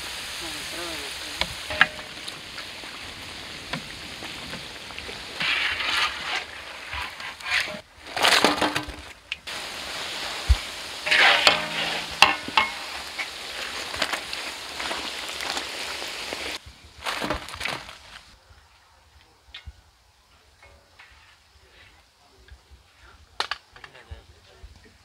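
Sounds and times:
deep-frying sizzle in oil: 0.0s - 7.8s, 9.4s - 17.0s
metal skimmer scraping pan: 1.6s - 2.8s, 5.3s - 9.1s, 11.0s - 13.8s.

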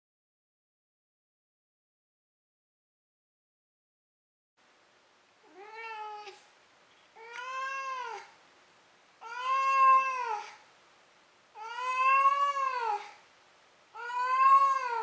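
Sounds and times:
cat meowing: 5.4s - 6.4s, 7.2s - 8.4s, 9.2s - 10.6s, 11.6s - 13.2s, 14.0s - 15.0s.

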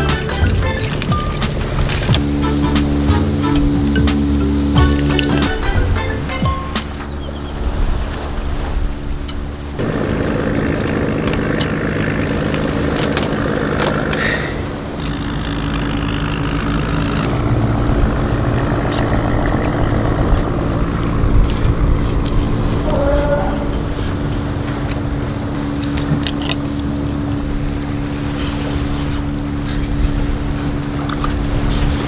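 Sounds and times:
low motor hum: 0.0s - 32.0s
rushing noise: 0.0s - 32.0s.

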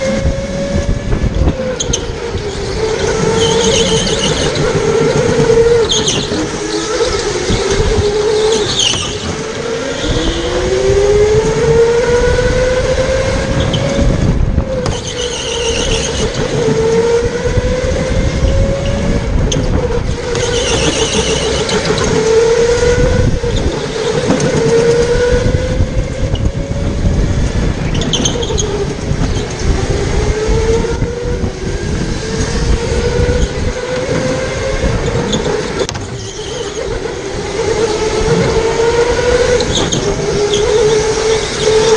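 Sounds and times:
go-kart motor whine: 0.0s - 41.9s
wheels rumbling on track: 0.0s - 41.9s
tyre squeals: 1.7s - 10.7s, 14.8s - 16.9s, 20.3s - 25.0s, 35.0s - 37.0s.

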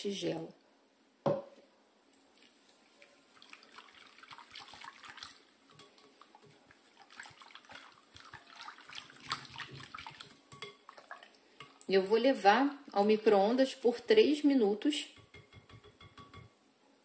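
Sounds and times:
whisk beating liquid in bowl: 3.6s - 11.3s, 15.1s - 16.5s.

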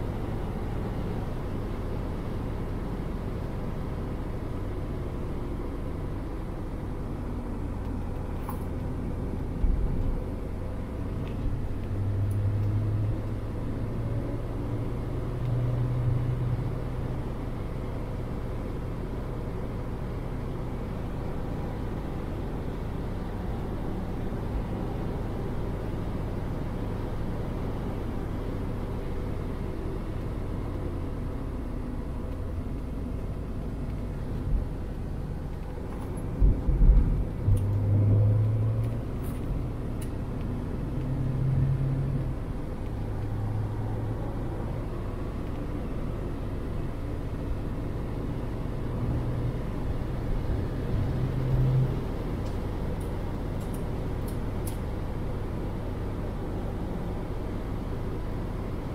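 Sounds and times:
wind and road noise: 0.0s - 58.9s.

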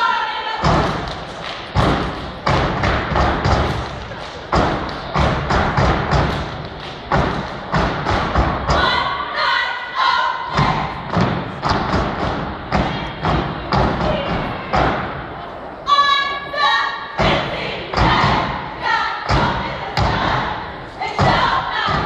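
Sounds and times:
rhythmic stomps and claps: 0.6s - 9.0s, 10.5s - 15.2s, 17.2s - 22.0s.

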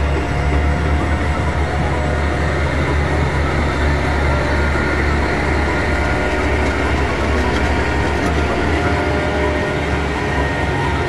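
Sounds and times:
heavy vehicle engine droning: 0.0s - 11.0s.

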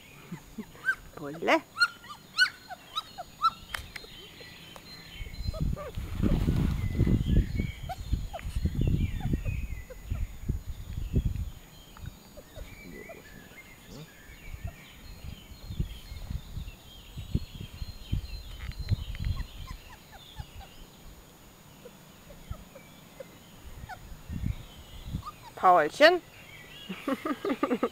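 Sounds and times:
puppies high chirps: 0.2s - 10.4s, 12.0s - 15.3s, 18.5s - 20.8s, 21.8s - 25.9s.

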